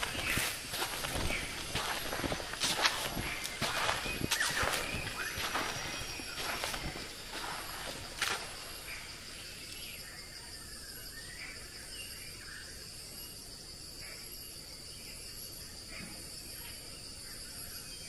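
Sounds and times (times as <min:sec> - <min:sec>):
faint chirps: 0:00.0 - 0:12.7
high-pitched insect chorus: 0:00.0 - 0:18.0.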